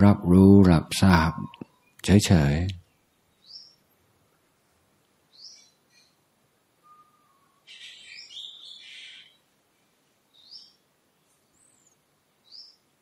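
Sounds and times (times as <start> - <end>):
faint bird calls: 5.3 - 6.2, 6.8 - 9.5.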